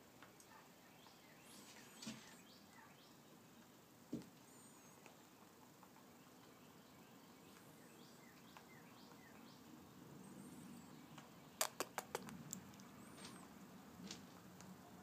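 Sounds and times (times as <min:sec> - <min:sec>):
sharp clicks: 0:11.2 - 0:12.9.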